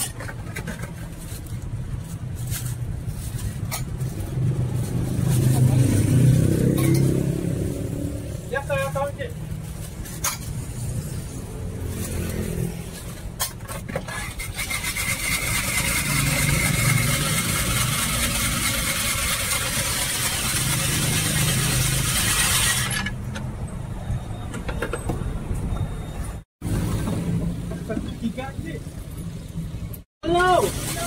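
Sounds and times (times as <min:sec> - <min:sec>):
ice shaving machine grinding: 0:14.6 - 0:23.0.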